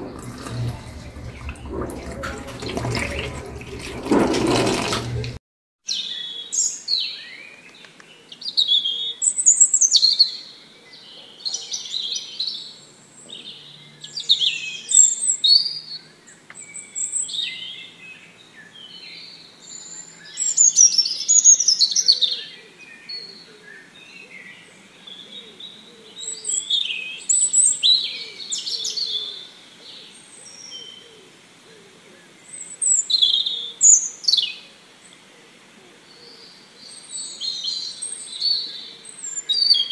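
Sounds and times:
birds chirping and singing: 36.1 - 39.9.

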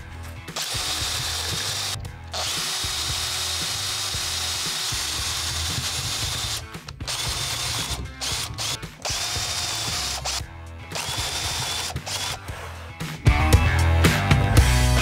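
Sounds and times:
loud music: 0.0 - 15.0
power drill boring into wood: 0.6 - 12.6.

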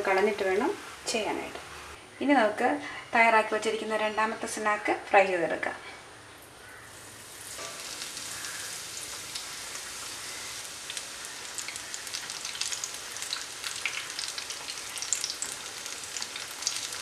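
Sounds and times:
plantain frying in hot oil: 6.6 - 17.0.

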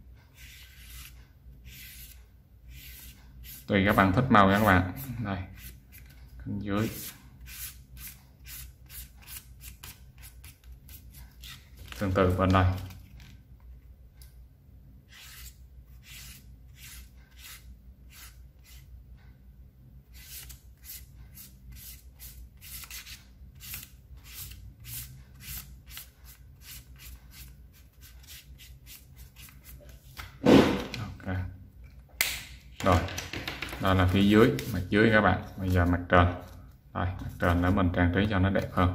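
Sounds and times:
marker scratching on paper: 0.3 - 3.7, 6.9 - 11.6, 15.1 - 18.9.

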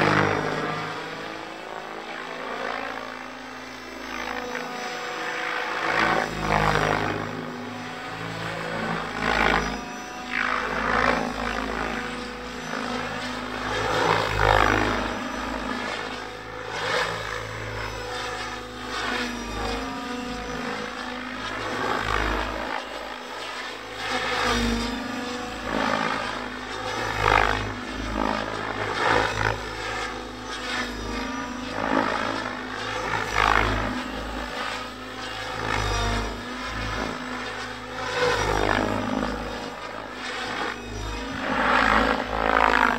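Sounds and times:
electric motor whine: 0.0 - 42.9
rc helicopter rotor whoosh: 0.0 - 42.9.

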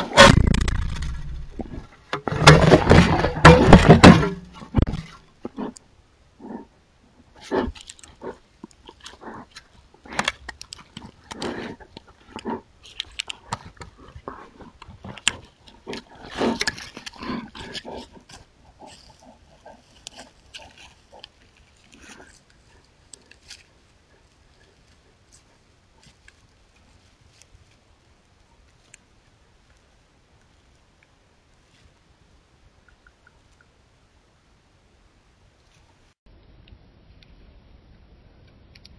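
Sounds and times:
claws and teeth scraping camera: 7.3 - 27.5
bear breathing: 10.9 - 26.3.

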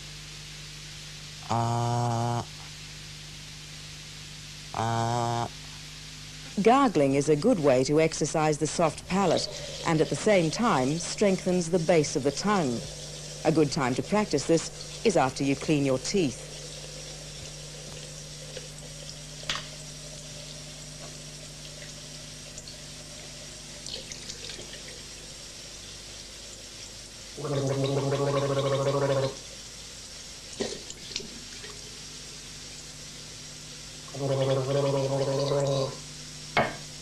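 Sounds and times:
person gargling water: 1.4 - 2.5, 4.8 - 5.6, 9.2 - 19.2, 27.4 - 29.5, 34.1 - 36.1.

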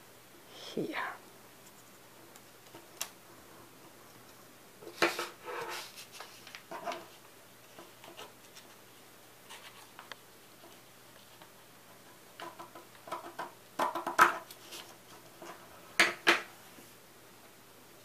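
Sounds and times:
paper rustling and sliding: 4.8 - 7.2.

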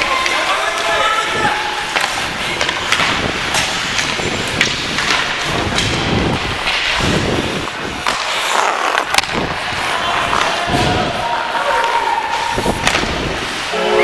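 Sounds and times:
skate blades scraping on ice: 1.7 - 13.7
stick or puck clicking on ice: 8.0 - 9.6.

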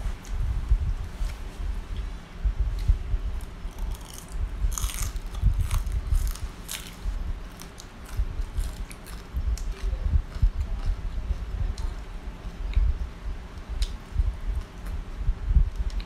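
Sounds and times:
crunchy chewing: 3.3 - 12.8.

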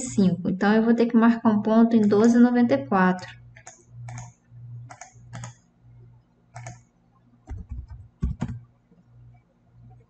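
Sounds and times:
computer keyboard keystrokes: 3.6 - 5.6, 6.5 - 6.9, 7.5 - 8.6
mouse clicks: 3.6 - 5.6, 6.6 - 6.9.

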